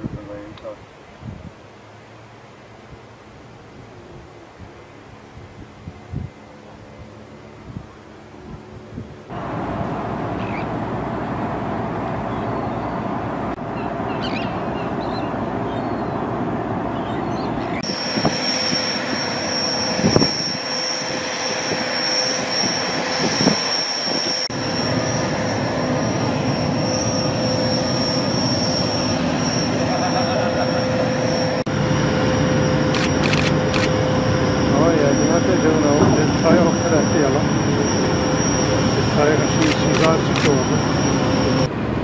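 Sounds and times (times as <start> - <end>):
marine engines droning: 0.3 - 42.0
thin high whine: 17.0 - 41.7.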